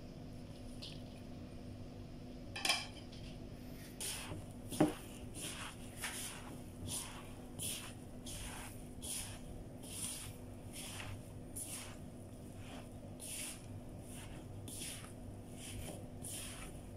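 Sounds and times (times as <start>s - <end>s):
hand squishing raw meat mixture: 4.0s - 16.9s.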